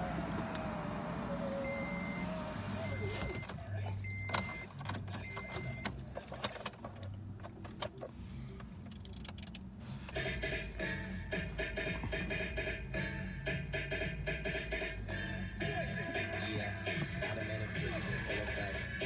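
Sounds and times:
car warning chime beeping: 0.0 - 6.0
music with a beat: 10.1 - 19.0.

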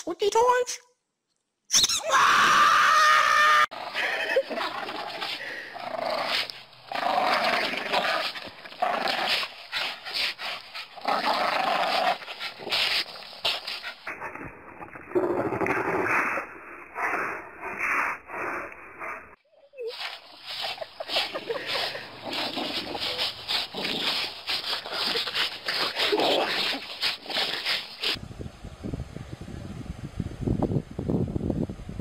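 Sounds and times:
dogs growling and barking: 3.7 - 28.2.

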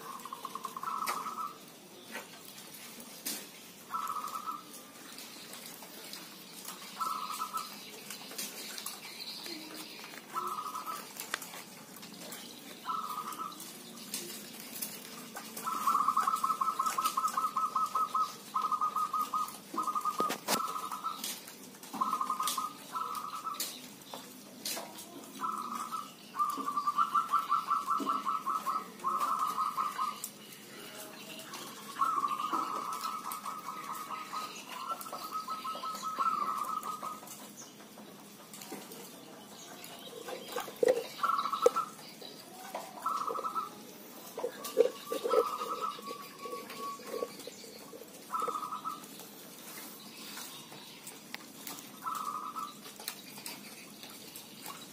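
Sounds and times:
doves cooing: 0.0 - 54.9.

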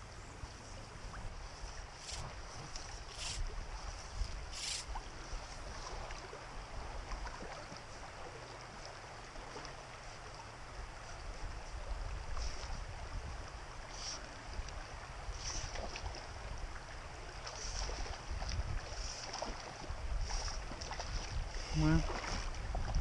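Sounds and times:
creek water running: 0.0 - 23.0
wind on microphone: 0.8 - 7.5, 11.0 - 23.0
brief hissing sounds: 4.6 - 4.9.

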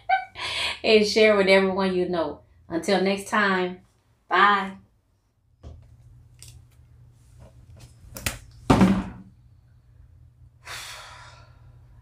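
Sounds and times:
low steady hum: 0.0 - 12.0
person breathing: 10.6 - 12.0.

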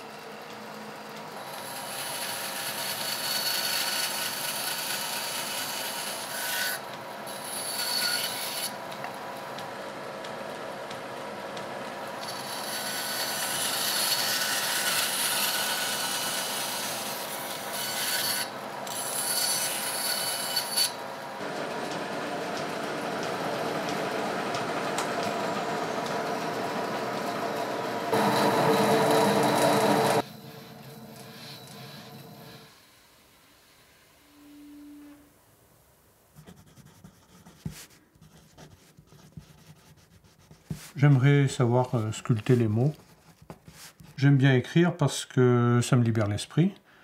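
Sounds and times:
bandsaw motor hum: 0.0 - 32.8
bandsaw cutting wood: 1.4 - 8.8, 12.2 - 30.4.

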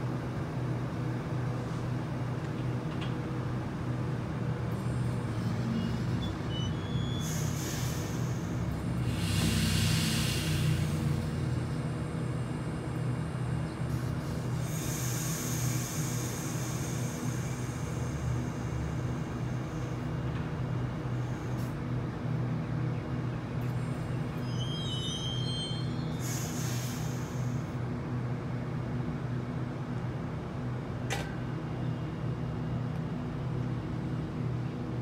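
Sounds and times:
air hissing: 7.2 - 11.4, 14.0 - 20.0, 24.5 - 27.7
electric train humming: 7.2 - 34.5.

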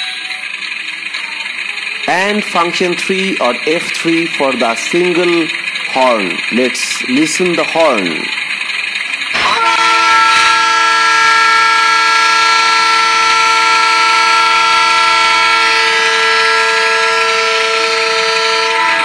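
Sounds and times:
model locomotive horn through speaker: 9.3 - 19.0.

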